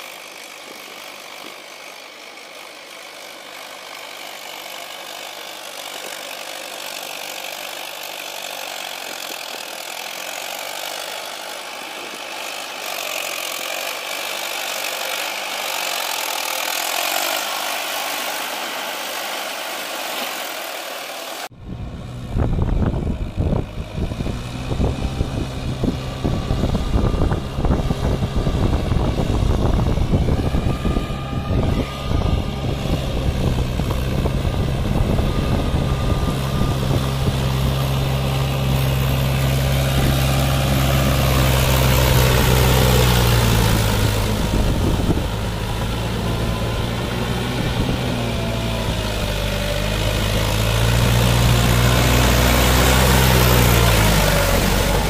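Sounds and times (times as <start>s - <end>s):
tractor diesel engine running: 0.0s - 55.0s
deep rumble with uneven buffeting: 21.5s - 49.4s.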